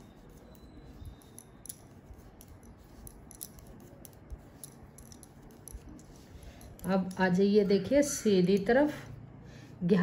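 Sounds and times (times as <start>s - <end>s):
knitting needles clicking: 1.0s - 7.3s.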